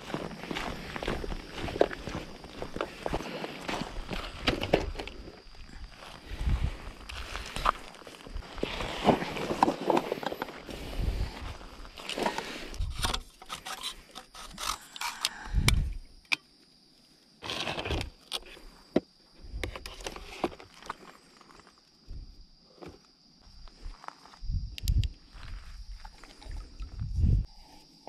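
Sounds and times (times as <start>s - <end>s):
rustling in a bag: 0.0s - 12.4s.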